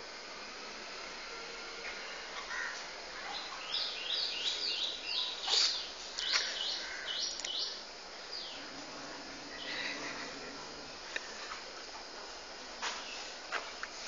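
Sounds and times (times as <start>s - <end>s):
bird chirping: 3.3s - 8.7s.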